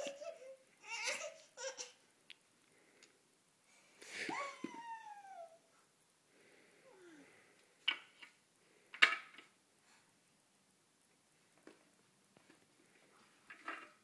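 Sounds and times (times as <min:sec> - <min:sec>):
baby cooing: 0:00.0 - 0:02.0, 0:04.3 - 0:05.7
baby squealing: 0:04.3 - 0:05.6.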